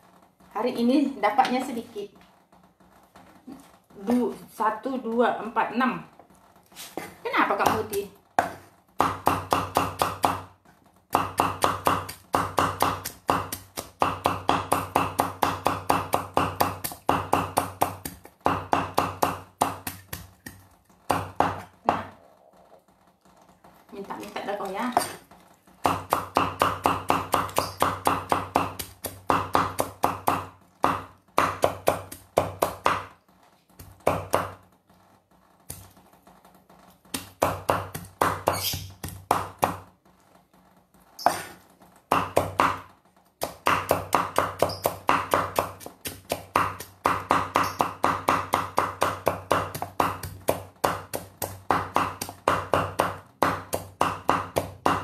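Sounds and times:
cleaver chopping on wooden board: 0:07.6 - 0:10.5, 0:11.1 - 0:22.1, 0:25.8 - 0:33.1, 0:33.9 - 0:34.6, 0:37.2 - 0:39.8, 0:41.2 - 0:55.0.

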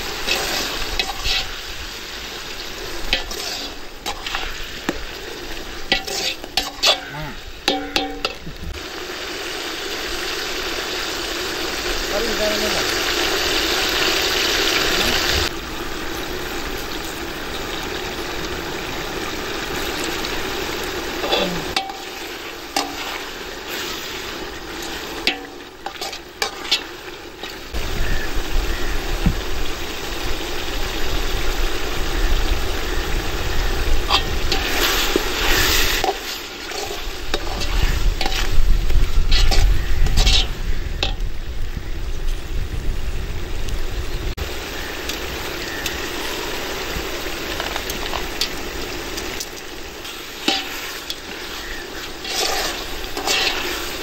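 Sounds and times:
food sizzling in oil: 0:00.0 - 0:54.0
metal utensil scraping a pot: 0:00.2 - 0:01.6, 0:03.0 - 0:08.4, 0:21.2 - 0:27.6, 0:34.1 - 0:38.6, 0:39.2 - 0:41.2, 0:50.0 - 0:54.0.

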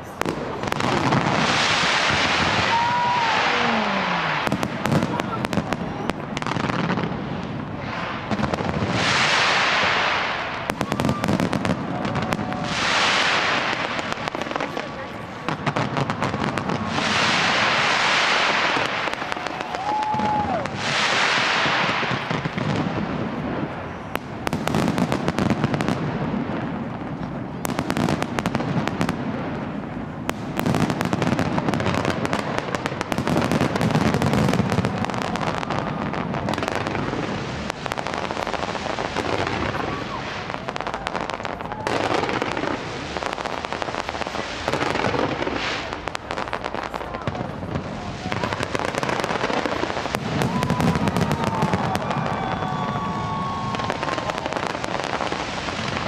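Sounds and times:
firework whistle: 0:00.0 - 0:14.8, 0:15.9 - 0:23.0, 0:33.1 - 0:47.2, 0:48.0 - 0:56.0
fireworks hissing sprays: 0:00.0 - 0:23.4, 0:30.3 - 0:56.0
fireworks crackling and popping: 0:00.0 - 0:56.0.

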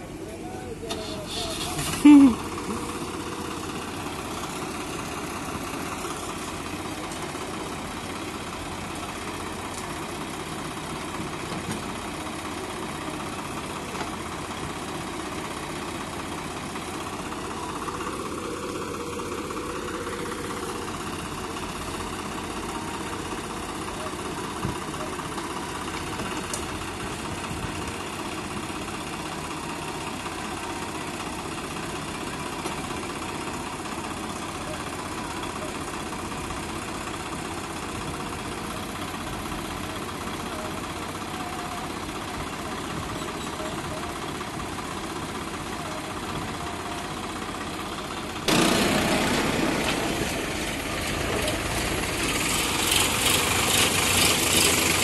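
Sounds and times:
backhoe loader engine running: 0:00.0 - 0:55.0
tractor diesel idling: 0:00.0 - 0:55.0.

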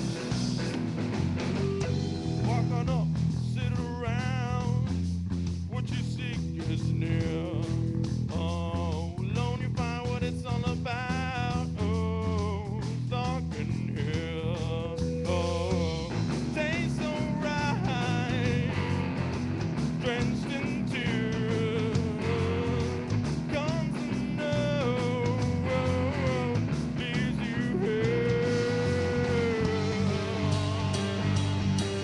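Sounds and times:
live rock band playing: 0:00.0 - 0:32.0
wavering lead melody: 0:01.4 - 0:02.9.

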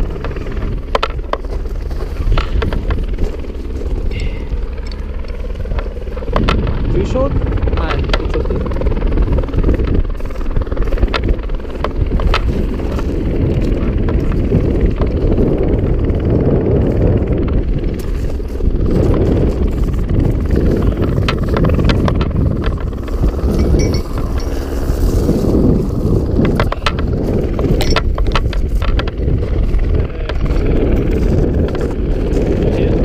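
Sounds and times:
helicopter rotor and turbine: 0:00.0 - 0:33.0
wind buffeting microphone: 0:00.0 - 0:33.0
sharp clicks and clinks: 0:23.5 - 0:24.6, 0:27.8 - 0:28.1.

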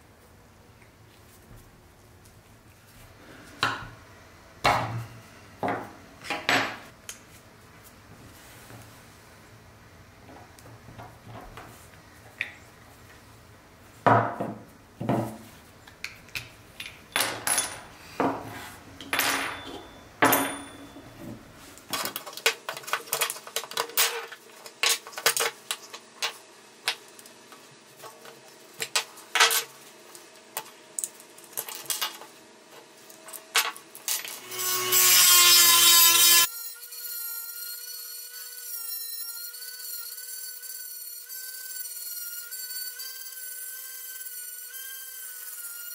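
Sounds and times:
rotary tool grinding steel: 0:34.3 - 0:45.9.

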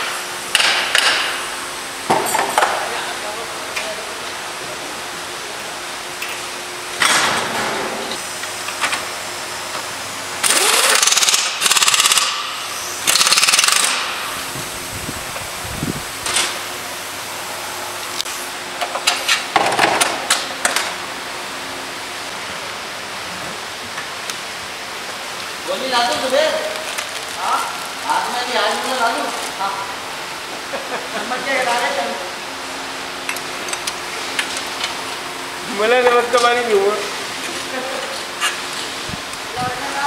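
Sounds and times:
impact wrench rattling: 0:10.4 - 0:12.4, 0:13.0 - 0:14.1.

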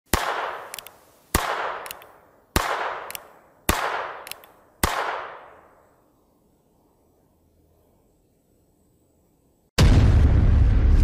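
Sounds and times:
revolver gunshots: 0:00.1 - 0:05.7.

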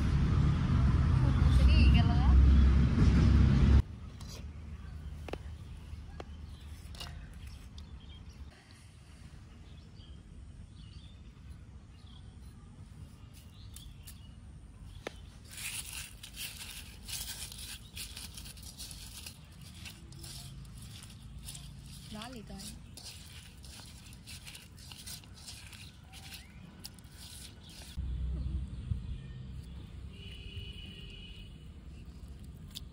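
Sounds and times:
low outdoor rumble: 0:00.0 - 0:10.7
dry chilies crunching by hand: 0:13.4 - 0:28.0, 0:29.5 - 0:32.9.

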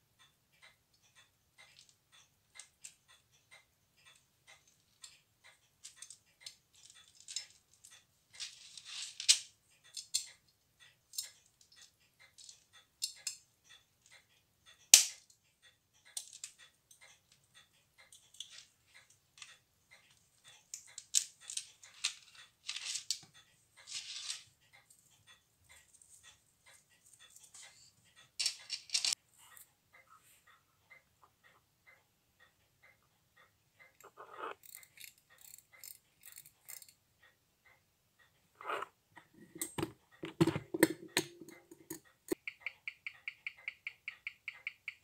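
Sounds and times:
pocket watch ticking: 0:00.0 - 0:45.0
ratcheting clicks of watch crown: 0:33.8 - 0:37.0.

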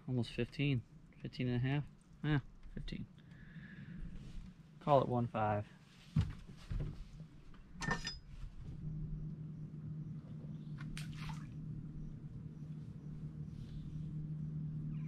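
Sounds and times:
steady low hum: 0:00.0 - 0:15.0
water splash: 0:10.8 - 0:11.6.

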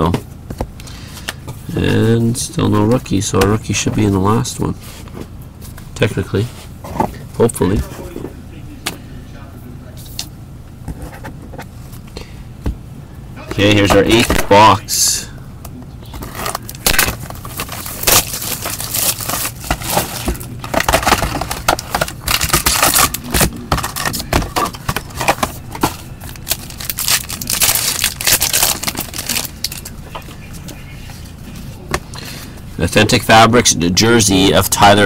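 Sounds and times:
foil wrapper crackling and crinkling: 0:16.3 - 0:24.2, 0:26.2 - 0:30.0.

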